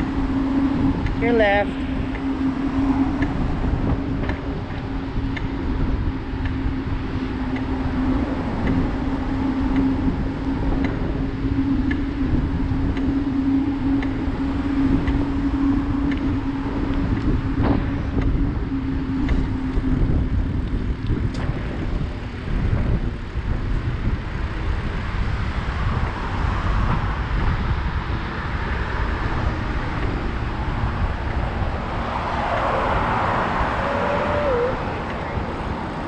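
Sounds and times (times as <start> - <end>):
bicycle rumble: 0.0 - 36.0
steady hum: 0.0 - 36.0
wind buffeting microphone: 0.0 - 36.0
faint ticks: 5.3 - 5.5, 10.8 - 11.0, 16.0 - 16.3.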